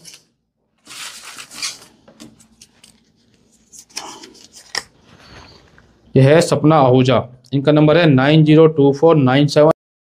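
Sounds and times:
paper rustling and crinkling: 0:00.8 - 0:05.7.

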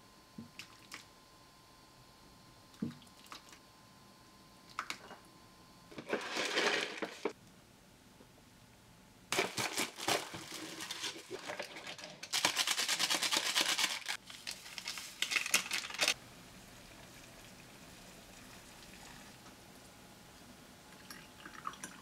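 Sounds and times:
packaging crinkling: 0:09.3 - 0:16.2
water pouring into cup: 0:20.9 - 0:22.0.

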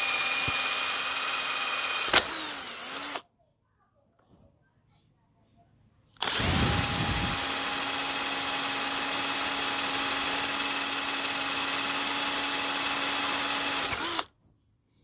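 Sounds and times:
cordless drill boring into wood: 0:00.0 - 0:03.2, 0:06.2 - 0:14.3.

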